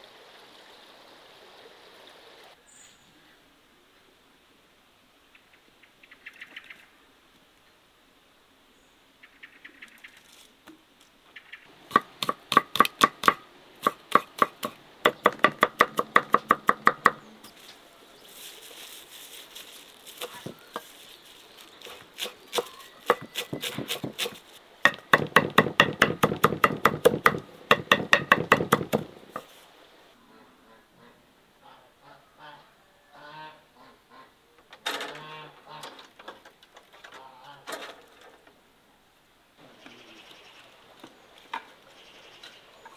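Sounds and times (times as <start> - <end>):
cleaver chopping on wooden board: 11.9 - 17.2, 22.2 - 29.5.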